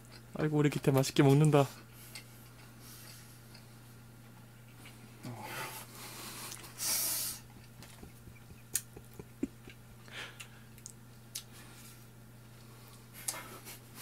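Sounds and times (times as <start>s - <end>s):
sucking intake of air: 6.1s - 7.5s.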